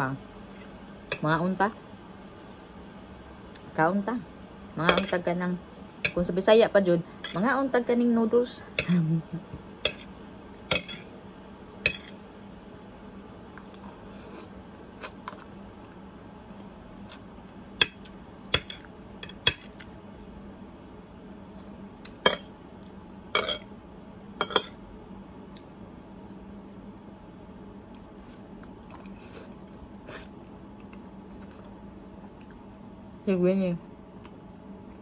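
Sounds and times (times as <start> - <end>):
fork clinking and scraping on plate: 10.7 - 11.1, 11.9 - 12.2, 23.4 - 23.7, 24.4 - 24.8.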